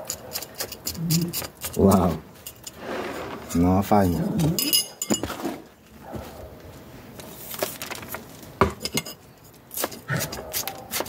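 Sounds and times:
hand tools clicking and knocking: 0:00.0 - 0:02.8, 0:03.5 - 0:05.5, 0:08.6 - 0:11.0.

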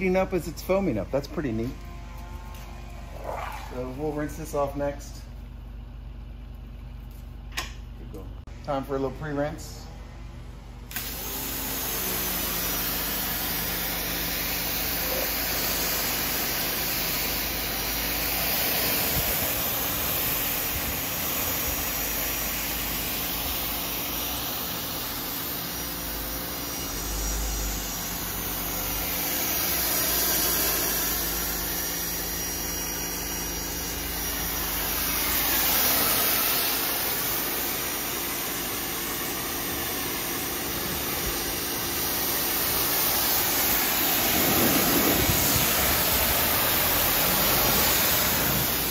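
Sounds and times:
pressure washer spray hissing: 0:10.9 - 0:48.9
pump humming: 0:10.9 - 0:48.9.

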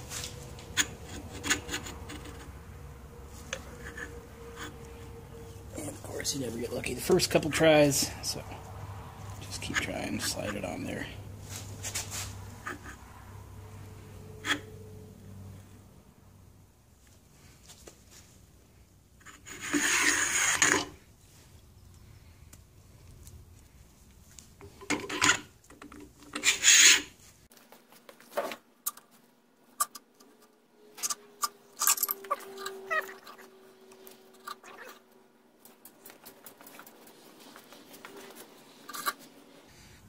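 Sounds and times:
plastic housing scraping: 0:19.2 - 0:21.0.

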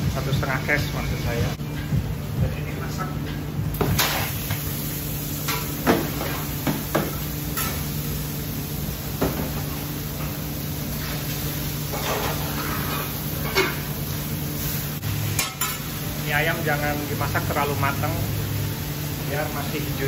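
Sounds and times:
steady low hum: 0:00.0 - 0:06.4.

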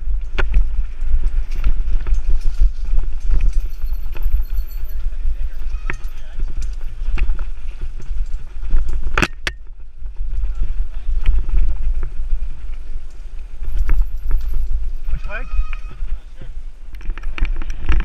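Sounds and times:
bike rattling and knocking: 0:00.0 - 0:16.2
wind rumble on microphone: 0:00.0 - 0:18.0.

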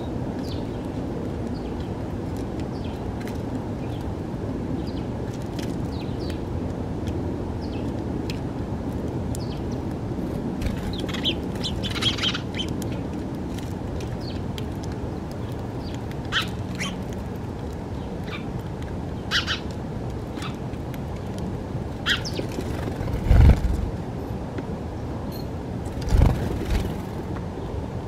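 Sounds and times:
sparrows chirping: 0:00.0 - 0:02.0, 0:02.7 - 0:03.1, 0:04.8 - 0:05.2, 0:05.8 - 0:06.5, 0:07.6 - 0:07.9, 0:09.4 - 0:09.9, 0:10.6 - 0:13.1, 0:14.0 - 0:14.5, 0:15.3 - 0:17.2, 0:17.9 - 0:18.5, 0:19.1 - 0:20.7, 0:22.0 - 0:24.0
low background rumble: 0:00.0 - 0:25.2.

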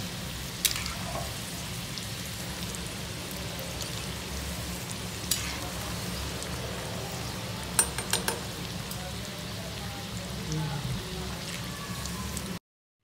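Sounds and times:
food sizzling in hot oil: 0:00.0 - 0:12.6
slotted spoon clicking on pan: 0:07.8 - 0:08.5.

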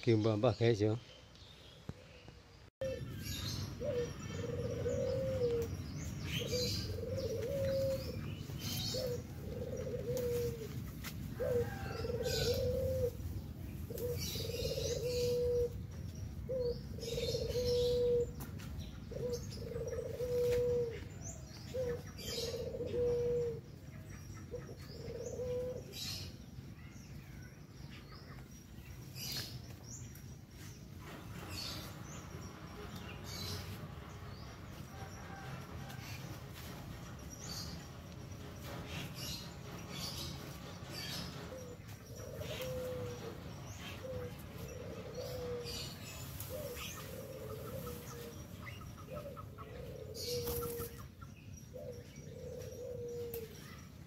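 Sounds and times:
dove cooing: 0:02.8 - 0:13.3, 0:13.9 - 0:15.8, 0:16.5 - 0:18.4, 0:19.1 - 0:23.7, 0:24.5 - 0:26.3, 0:34.9 - 0:36.0, 0:40.9 - 0:51.0, 0:51.7 - 0:53.8
leaves rustling: 0:05.0 - 0:15.4, 0:20.1 - 0:21.0, 0:42.3 - 0:49.3.

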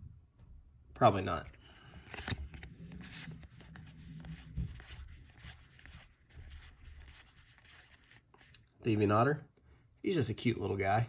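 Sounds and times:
cards sliding and rubbing: 0:01.5 - 0:08.6.

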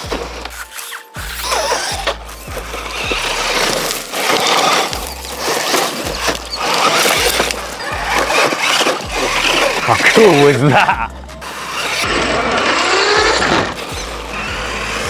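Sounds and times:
background music with bass beat: 0:00.0 - 0:15.0
rc truck motor rattling: 0:00.0 - 0:15.0.

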